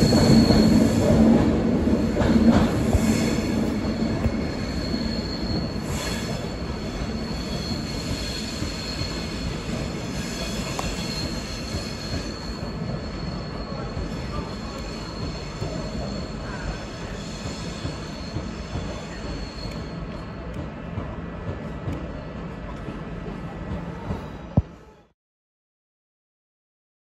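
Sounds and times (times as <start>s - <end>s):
train wheels squealing: 0.0s - 21.2s
low rumble of moving train: 0.0s - 25.1s.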